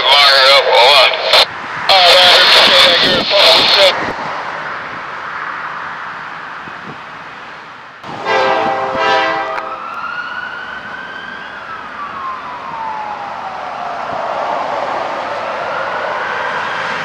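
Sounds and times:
freight train running: 0:08.0 - 0:09.9, 0:13.2 - 0:17.0
train horn blast: 0:08.1 - 0:09.8
siren wailing: 0:08.2 - 0:17.0.

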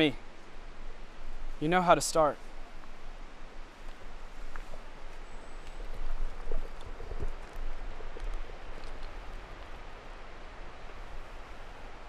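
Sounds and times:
outdoor hiss: 0:00.0 - 0:05.8
rustling in dry leaves: 0:00.3 - 0:12.0.

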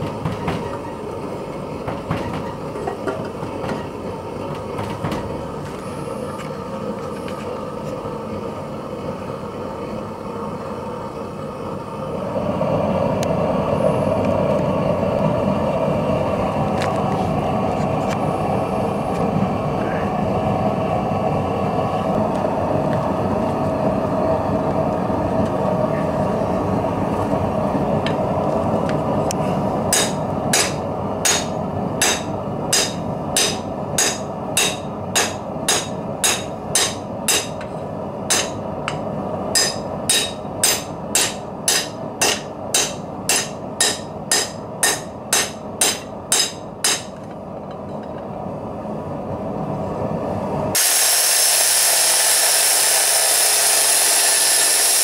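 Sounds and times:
hammer striking metal on anvil: 0:29.9 - 0:37.7, 0:38.3 - 0:39.0, 0:39.6 - 0:47.2.

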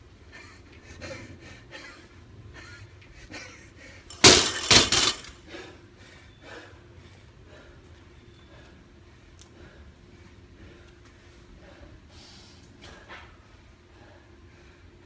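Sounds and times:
loud crash and clatter: 0:04.1 - 0:05.4.

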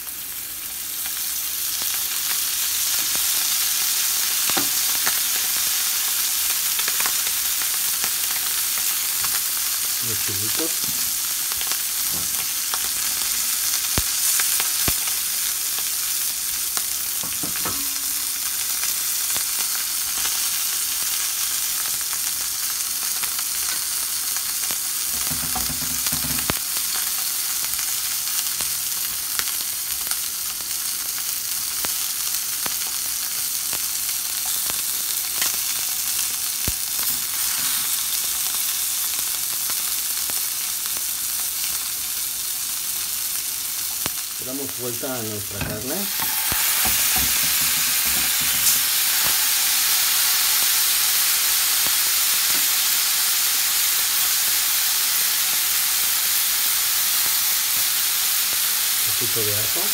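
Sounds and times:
steaks sizzling in oil: 0:00.0 - 0:59.9
tongs thumping steak: 0:17.2 - 0:18.5, 0:45.5 - 0:49.4.

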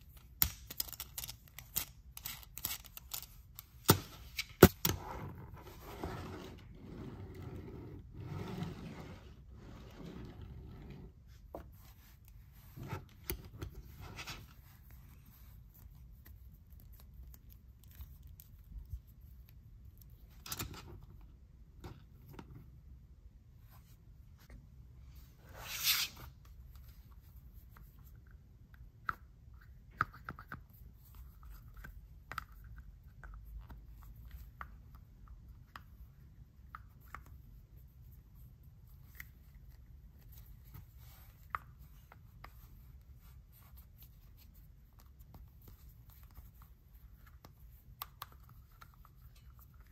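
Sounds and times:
plastic toy scraping: 0:05.7 - 0:11.1.

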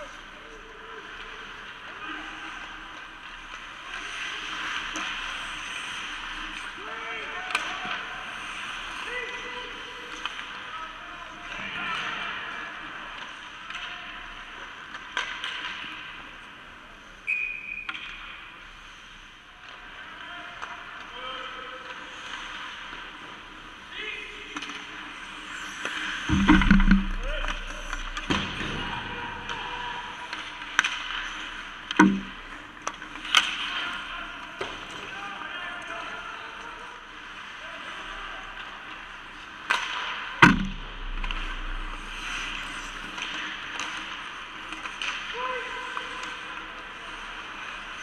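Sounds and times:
skates scraping on ice: 0:00.0 - 0:10.7, 0:20.8 - 0:35.4, 0:41.2 - 0:48.0
hockey sticks and puck clacking: 0:00.0 - 0:48.0.

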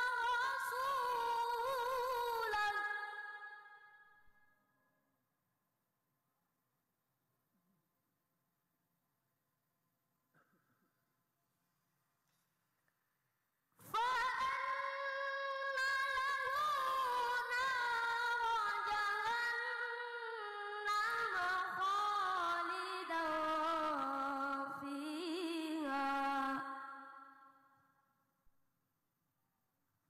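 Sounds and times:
boy chanting into a microphone: 0:00.0 - 0:03.8, 0:13.8 - 0:27.1.

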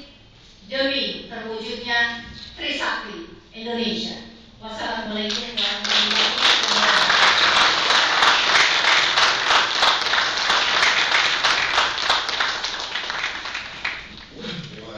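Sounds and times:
audience applauding: 0:05.3 - 0:14.3.

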